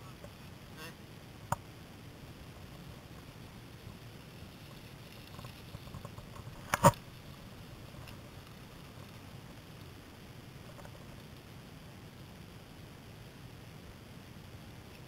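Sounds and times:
bike rolling on gravel: 2.2 - 11.6.

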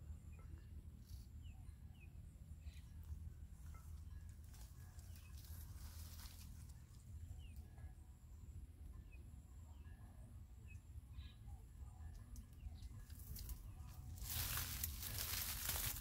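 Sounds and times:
leaves and branches rustling: 3.6 - 7.1, 13.0 - 16.0
bird chirps: 10.6 - 13.8.

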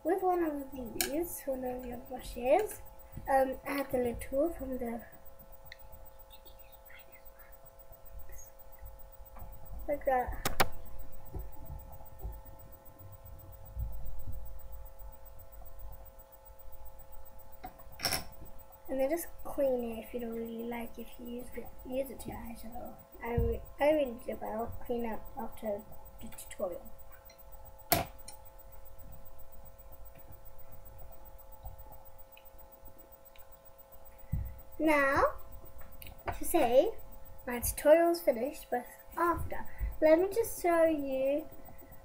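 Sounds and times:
microphone electrical hum: 0.0 - 42.0
muffled thuds and rumbles: 9.4 - 12.8, 13.6 - 14.6, 23.3 - 23.7, 34.3 - 35.3.

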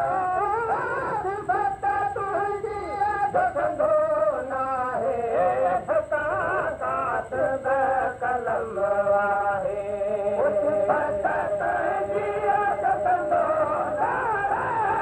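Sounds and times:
man singing a devotional hymn: 0.0 - 15.0.

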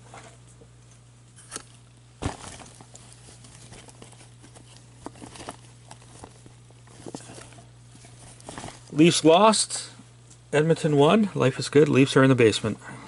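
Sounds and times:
steady low hum: 0.0 - 13.0
cloth bag rustling: 2.2 - 9.1.

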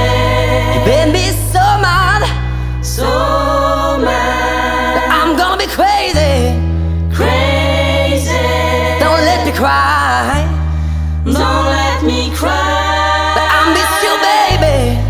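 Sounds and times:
person singing: 0.0 - 2.4, 8.3 - 15.0
sustained bass notes: 0.0 - 15.0.

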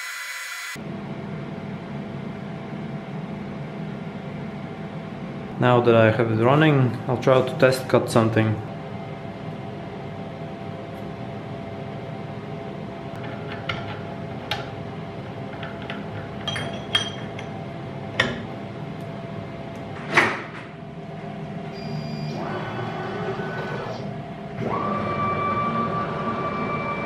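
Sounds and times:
steady hum: 0.0 - 22.1
metal clicks and knocks: 13.2 - 17.6.

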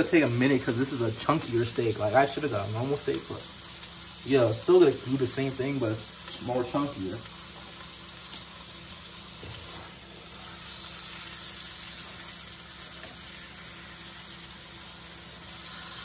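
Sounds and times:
steak sizzling in a frying pan: 0.0 - 16.0.

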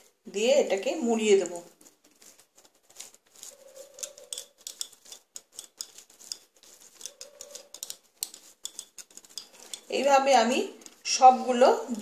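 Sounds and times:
hands shaping sticky mashed potato: 0.0 - 12.0.

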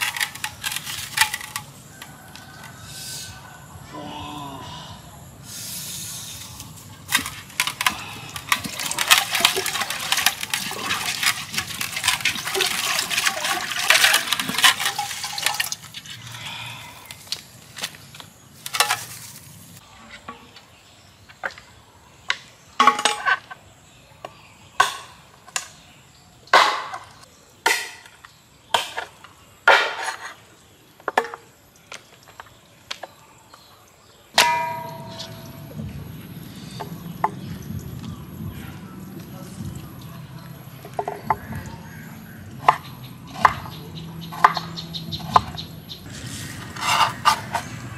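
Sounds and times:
water pouring and splashing: 6.6 - 16.4.

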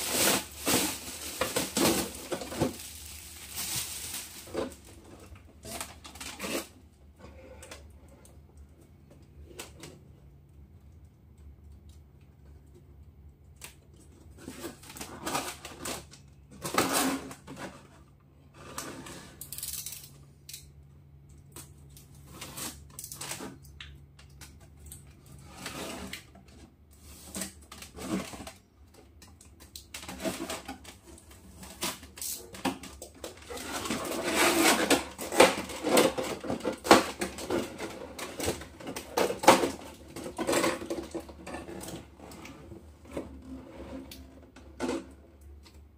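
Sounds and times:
plastic packaging crackling: 0.0 - 6.7.

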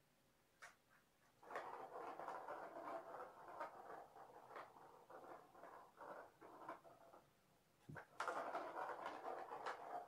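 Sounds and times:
ball rolling rattle in toy track: 1.4 - 7.3, 8.0 - 10.0.

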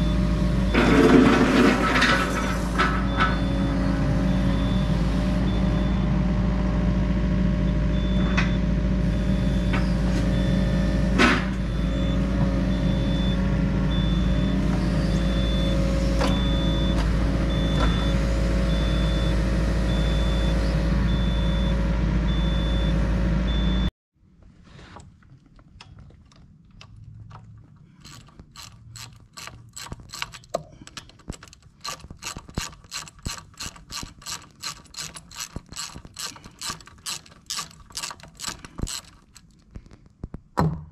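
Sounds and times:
diesel engine running: 0.0 - 23.9
hand ratchet clicking: 27.9 - 39.6.

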